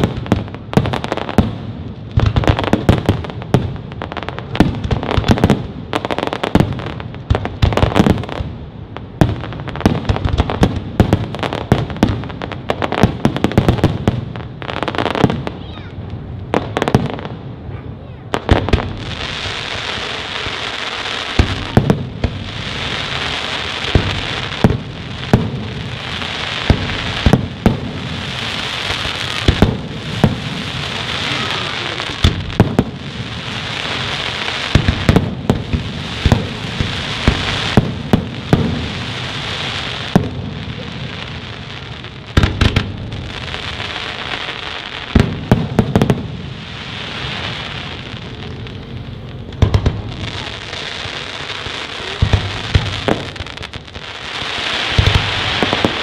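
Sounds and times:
firework bangs: 0.0 - 56.0.

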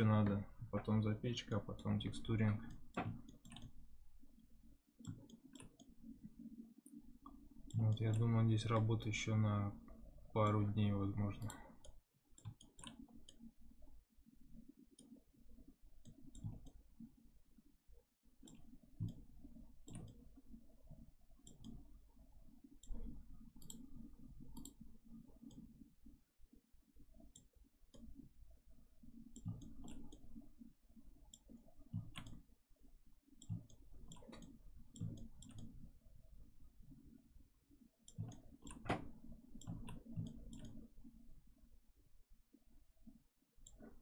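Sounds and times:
faint low hum: 0.0 - 44.0
computer mouse clicking: 1.5 - 3.8, 5.0 - 9.0, 9.9 - 13.5, 15.0 - 15.2, 16.0 - 16.9, 18.4 - 22.0, 22.8 - 25.9, 27.1 - 28.3, 29.2 - 30.6, 31.2 - 32.5, 33.4 - 35.9, 38.1 - 41.1, 43.1 - 44.0.

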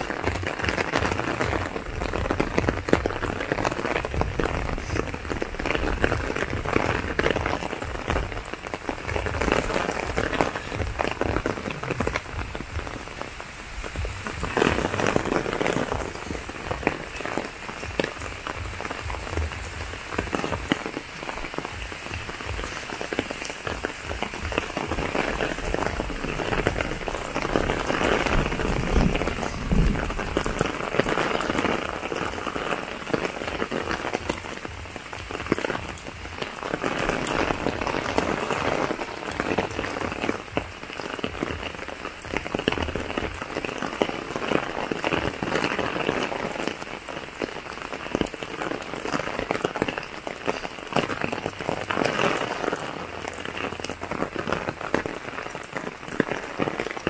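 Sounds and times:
steady rain falling: 0.0 - 57.0.

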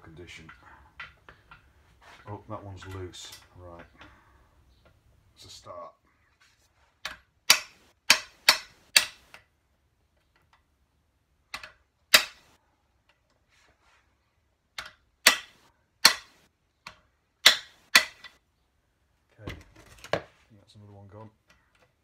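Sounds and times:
hammer striking impact driver: 7.5 - 9.3, 15.2 - 16.4.

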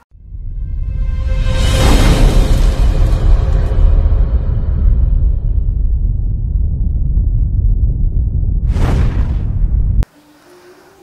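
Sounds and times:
cinematic music: 0.0 - 6.4
deep rumble: 0.2 - 10.1.

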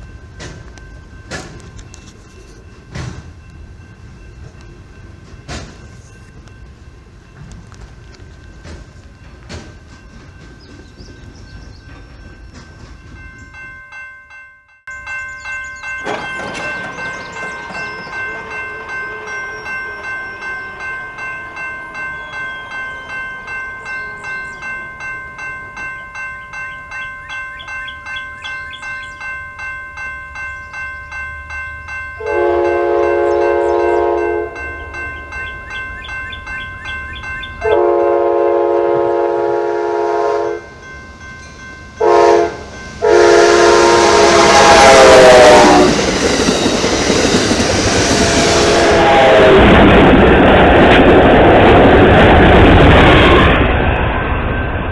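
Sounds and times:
railroad crossing bell ringing: 0.0 - 49.9
train engine and wheel noise: 0.0 - 54.9
locomotive air horn blasts: 32.2 - 34.6, 37.6 - 40.6, 42.0 - 46.0, 47.9 - 49.8.

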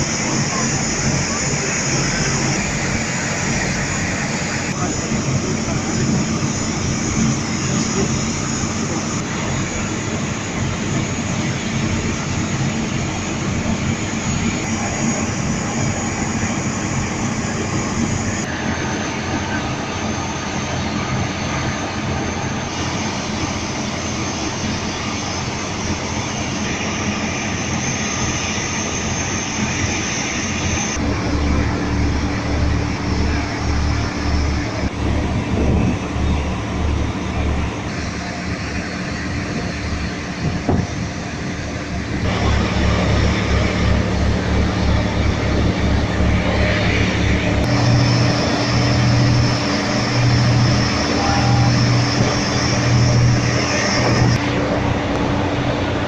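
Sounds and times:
boat engine droning: 0.0 - 56.0
wind: 0.0 - 56.0
rushing water: 20.3 - 56.0.

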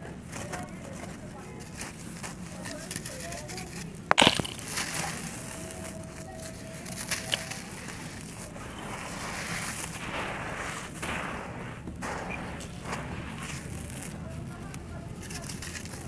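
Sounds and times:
dry soil rustling: 0.0 - 16.0
clay block crunching: 0.2 - 16.0.

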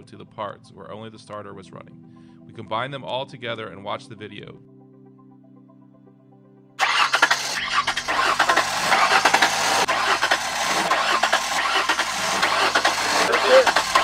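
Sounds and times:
starter motor cranking engine: 6.8 - 14.0.

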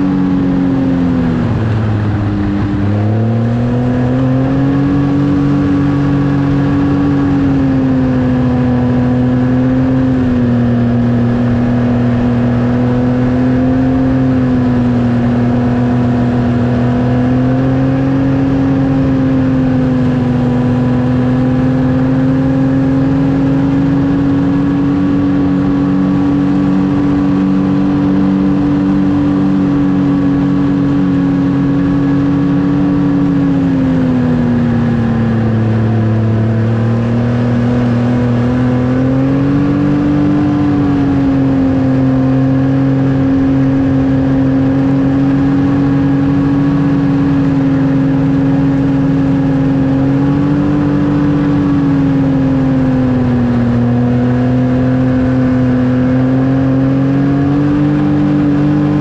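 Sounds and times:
snowmobile engine running: 0.0 - 59.0.

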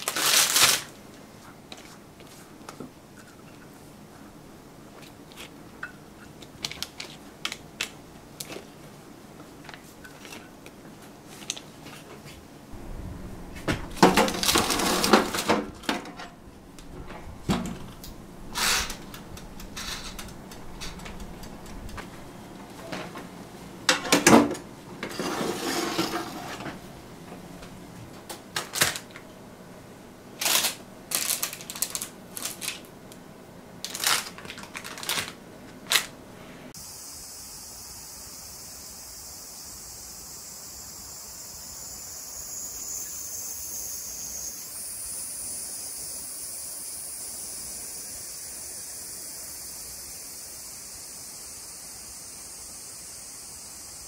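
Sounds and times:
tray clattering: 13.6 - 23.3, 23.9 - 26.9
oven dial knobs clicking: 17.6 - 22.4
kitchen clicks and knocks: 23.9 - 26.8.

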